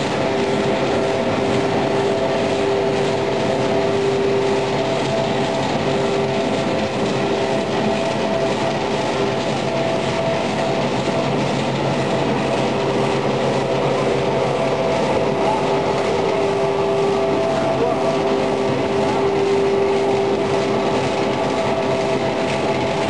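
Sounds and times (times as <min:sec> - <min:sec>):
industrial machinery din: 0:00.0 - 0:23.0.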